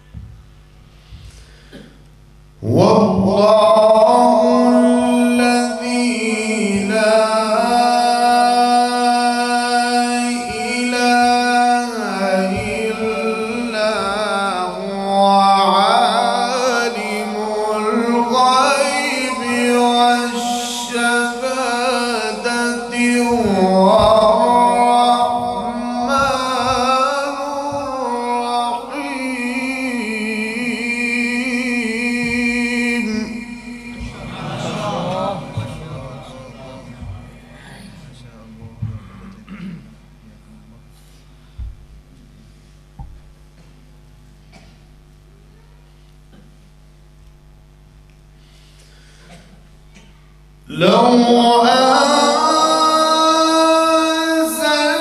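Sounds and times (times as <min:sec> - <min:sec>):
man reciting melodically: 0:02.6 - 0:40.9, 0:50.6 - 0:55.0.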